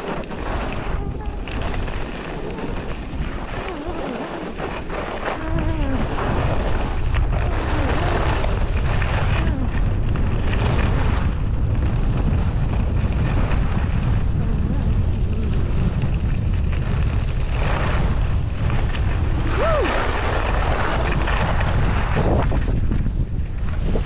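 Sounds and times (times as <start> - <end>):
skis scraping over packed snow: 0.0 - 24.0
wind buffeting microphone: 0.0 - 24.0.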